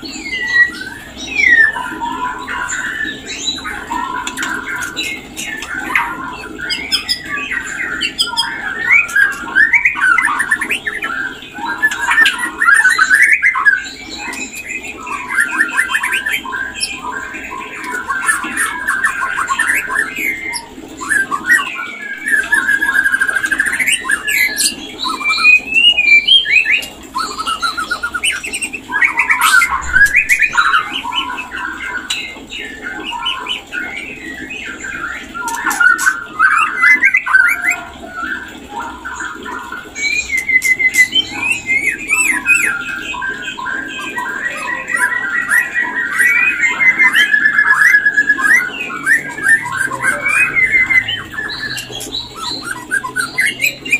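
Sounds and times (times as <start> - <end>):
songbird singing whistles and trills: 0.0 - 53.9.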